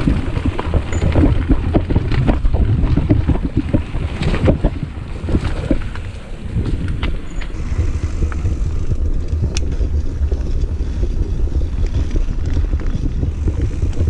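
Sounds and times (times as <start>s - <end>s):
bike clicks and rattles: 0.0s - 14.0s
mountain bike rolling on dirt: 0.0s - 14.0s
wind buffeting microphone: 0.0s - 14.0s.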